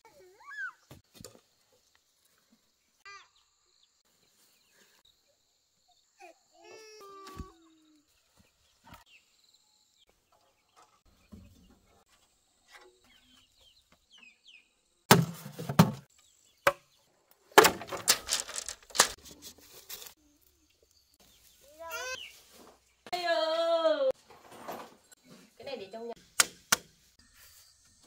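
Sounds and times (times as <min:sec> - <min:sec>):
sharp knocks and cracks: 0:15.1 - 0:16.9, 0:17.5 - 0:19.2, 0:26.4 - 0:27.0.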